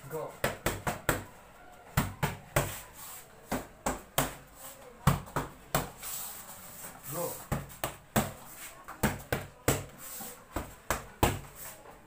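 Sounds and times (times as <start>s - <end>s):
boxing gloves slapping mitts: 7.5s - 11.6s.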